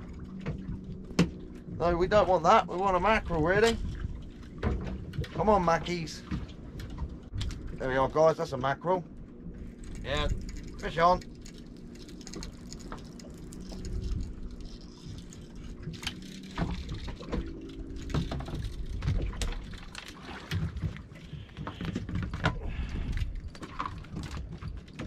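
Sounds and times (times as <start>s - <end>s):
boat engine idling: 0.0s - 25.0s
fishing tackle clicks and rattles: 9.6s - 20.8s.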